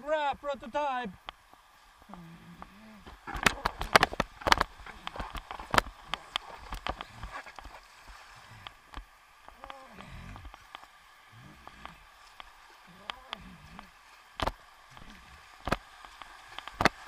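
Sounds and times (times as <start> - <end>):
low vocal sounds: 2.1 - 3.2, 9.5 - 10.6, 11.3 - 12.2, 12.8 - 14.0, 14.9 - 15.7
water splashing against board: 2.6 - 17.0.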